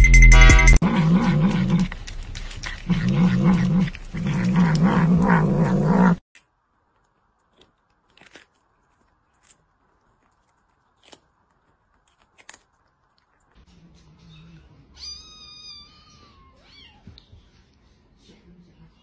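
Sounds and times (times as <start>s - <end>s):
cat yowling and growling: 0.8s - 6.2s, 15.0s - 17.2s.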